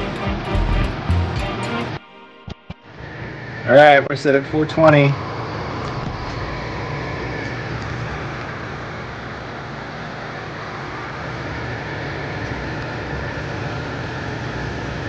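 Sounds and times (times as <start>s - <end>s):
fan noise with low hum: 3.0s - 15.0s.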